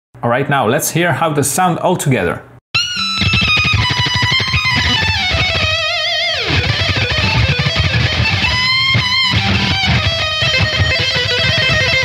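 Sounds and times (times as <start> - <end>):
chugging rhythm guitars: 2.8 - 12.0
distorted lead guitar with vibrato: 2.8 - 12.0
drums: 2.8 - 12.0.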